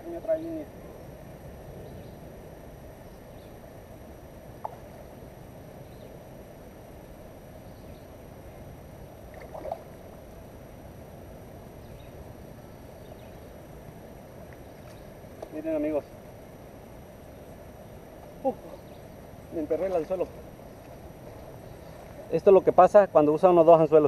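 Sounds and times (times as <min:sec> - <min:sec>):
low rushing outdoor noise: 0:00.0 - 0:24.0.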